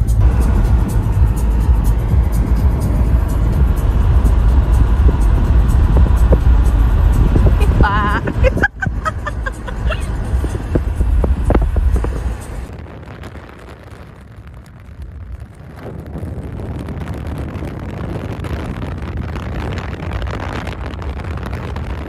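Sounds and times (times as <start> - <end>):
music playing: 0.0 - 12.7
wind and road noise in car: 0.0 - 22.0.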